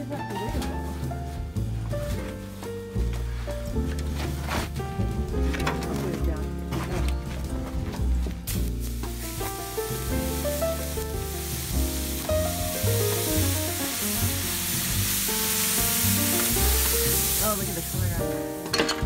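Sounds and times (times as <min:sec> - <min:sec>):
background music: 0:00.0 - 0:19.0
water hissing on hot ceramic: 0:08.4 - 0:18.8.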